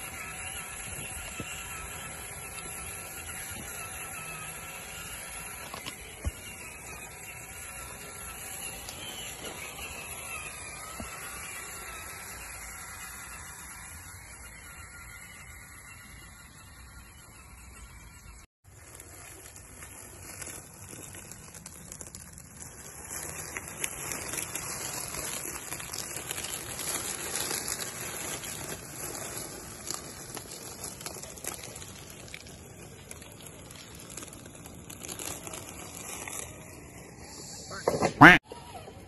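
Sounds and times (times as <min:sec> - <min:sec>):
leaves and twigs crackling under tyres: 0:00.0 - 0:37.6.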